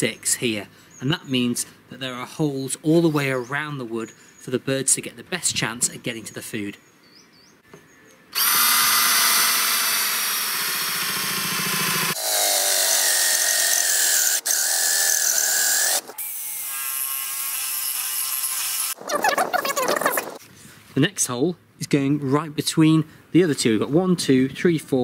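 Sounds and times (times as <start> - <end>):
power drill boring into wood: 8.4 - 19.0.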